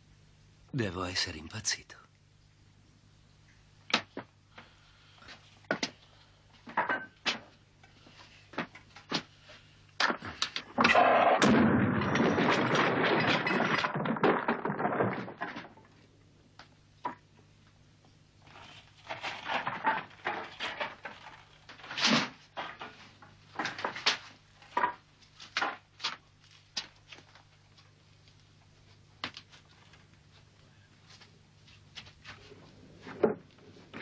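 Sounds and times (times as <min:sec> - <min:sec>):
objects clattering on a workbench: 0:05.3 - 0:06.0, 0:06.6 - 0:09.3, 0:10.0 - 0:16.1, 0:17.0 - 0:17.2, 0:18.5 - 0:26.2, 0:32.0 - 0:34.0.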